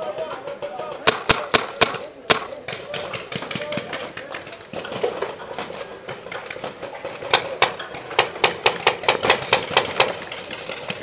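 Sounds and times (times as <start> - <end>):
paintball gun firing: 0.9 - 4.2.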